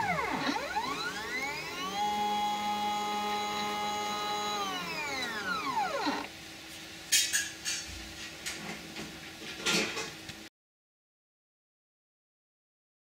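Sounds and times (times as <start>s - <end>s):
stepper motor whine: 0.0s - 6.3s.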